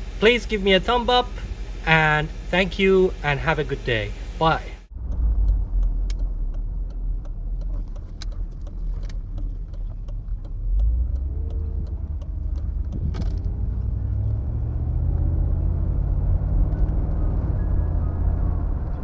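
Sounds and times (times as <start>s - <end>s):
car engine running from cabin: 0.0s - 19.0s.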